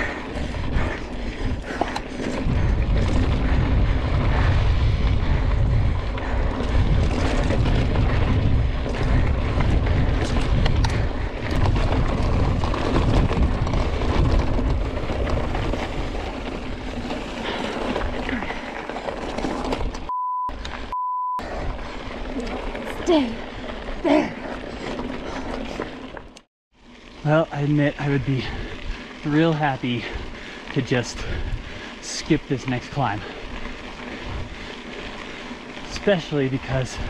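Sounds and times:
wind buffeting microphone: 0:00.0 - 0:20.0, 0:29.8 - 0:32.0, 0:33.4 - 0:35.8, 0:36.5 - 0:37.0
bike rattling clicks: 0:00.0 - 0:20.8
bike tyre noise: 0:00.0 - 0:37.0.

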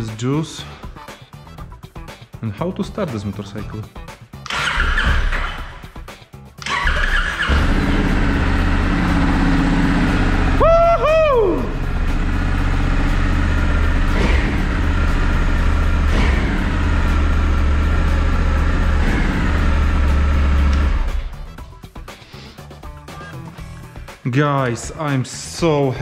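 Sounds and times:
motorcycle engine idling: 0:06.6 - 0:21.8
two-note whoop: 0:10.5 - 0:11.8.

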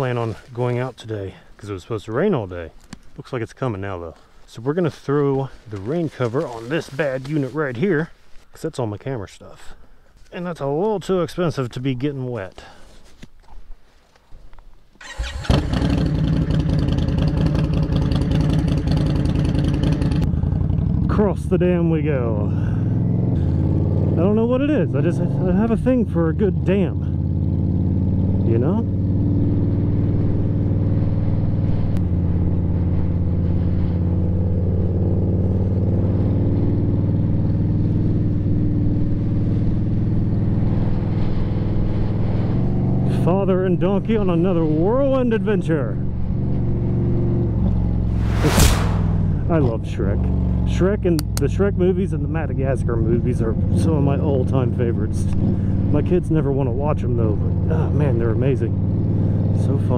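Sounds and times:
motorcycle engine starting and idling: 0:15.0 - 0:21.3.

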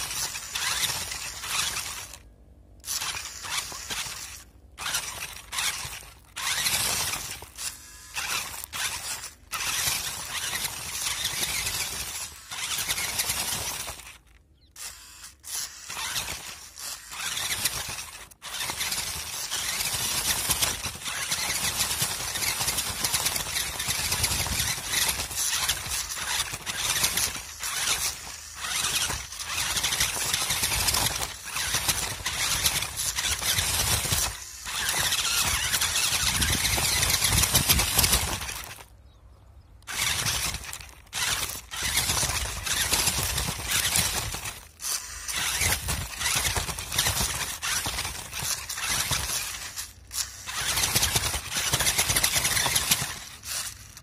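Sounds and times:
rc truck motor whining: 0:00.0 - 0:54.0
tyres crunching over dirt: 0:15.9 - 0:54.0.

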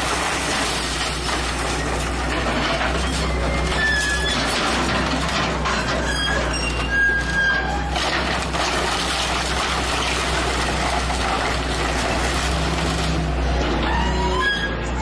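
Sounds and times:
bucket crunching into house: 0:00.0 - 0:13.3
excavator diesel engine: 0:00.0 - 0:15.0
wood cracking: 0:07.9 - 0:13.3.

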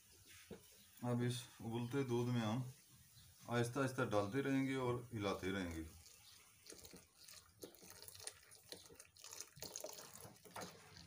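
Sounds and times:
wooden spoon stirring in metal pot: 0:00.0 - 0:01.0
paste pouring into boiling milk: 0:05.2 - 0:11.0
small splashes and ticks: 0:05.6 - 0:11.0.

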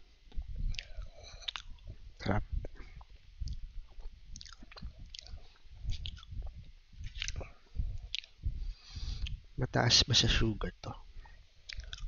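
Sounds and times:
person chewing cookies: 0:00.3 - 0:02.0, 0:02.6 - 0:09.4, 0:11.6 - 0:12.0.

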